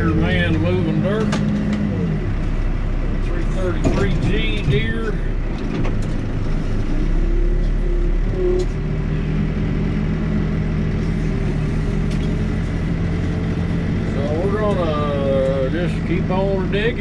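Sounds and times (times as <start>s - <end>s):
backhoe diesel engine running: 0.0s - 17.0s.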